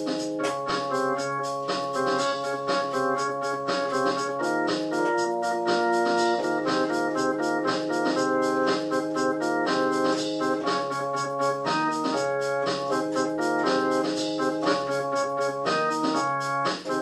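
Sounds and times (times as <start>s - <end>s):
organ music with steady beat: 0.0s - 17.0s.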